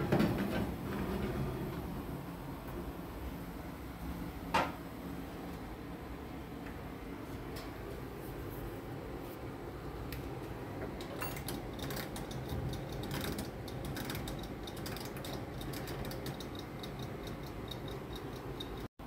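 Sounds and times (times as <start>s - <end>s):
timer dial clicking: 12.4s - 18.9s.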